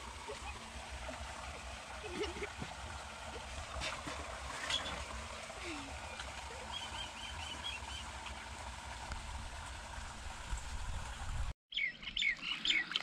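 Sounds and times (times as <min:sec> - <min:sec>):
water running in a channel: 0:00.0 - 0:11.6, 0:12.2 - 0:13.0
bird chirping: 0:11.7 - 0:13.0.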